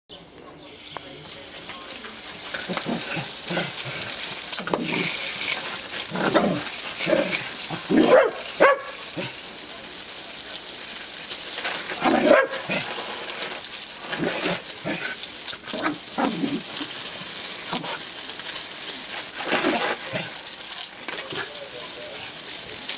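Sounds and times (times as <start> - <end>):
hiss of water spray: 0.6 - 22.9
dog barking: 8.0 - 9.3, 12.1 - 12.8.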